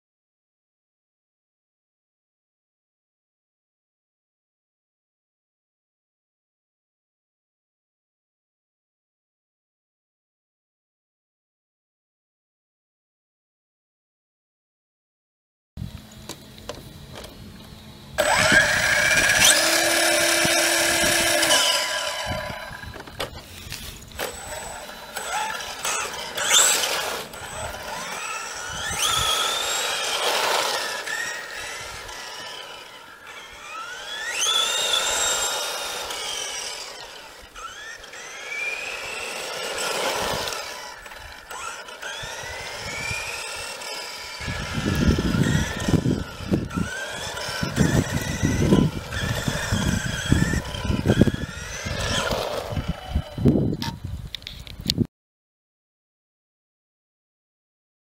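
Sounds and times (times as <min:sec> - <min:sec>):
electric motor whining: 0:16.6 - 0:54.7.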